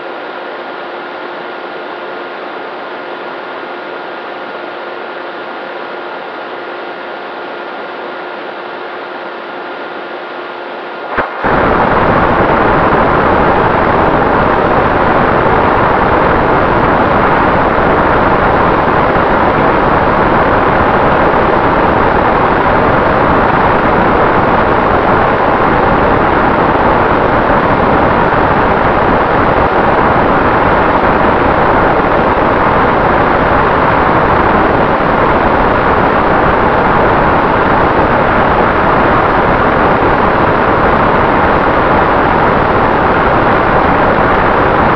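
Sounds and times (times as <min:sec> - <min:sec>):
wind rushing over microphone: 0:11.1 - 0:44.9.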